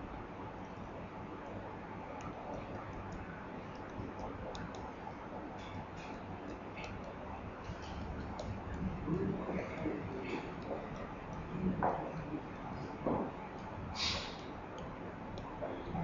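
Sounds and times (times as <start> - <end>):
low room hum: 0.0 - 16.0
stylus tapping on screen: 1.4 - 13.8.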